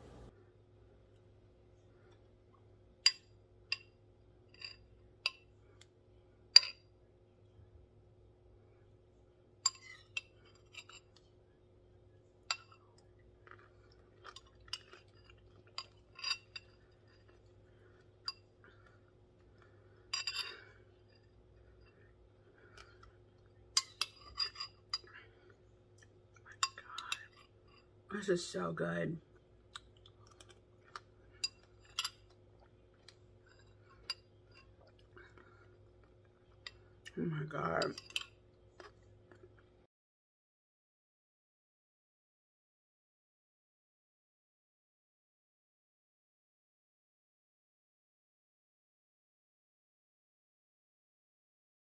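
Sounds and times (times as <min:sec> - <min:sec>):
faint steady hum: 0:00.0 - 0:39.9
metal spoon clinking ceramic bowl: 0:23.8 - 0:25.1, 0:37.8 - 0:38.4.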